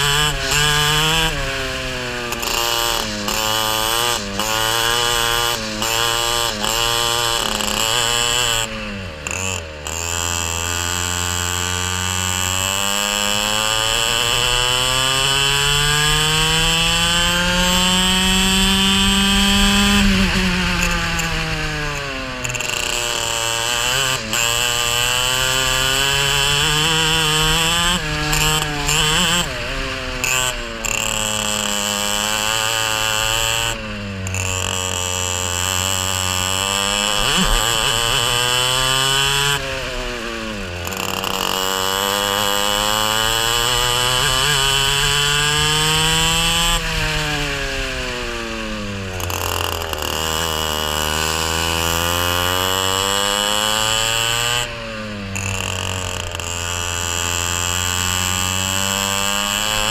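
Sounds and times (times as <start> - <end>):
racing kart engine revving: 0.0 - 59.9.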